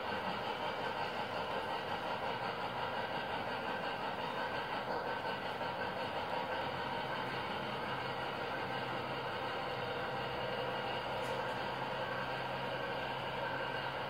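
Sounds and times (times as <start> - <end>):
model train running on track: 0.0 - 14.0.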